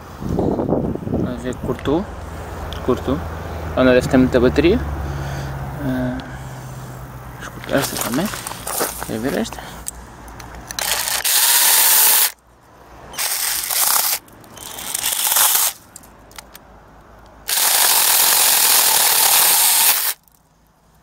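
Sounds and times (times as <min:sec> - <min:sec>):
mini chainsaw cutting sapling: 0:07.7 - 0:09.4, 0:10.7 - 0:12.4, 0:13.1 - 0:16.5, 0:17.4 - 0:20.3.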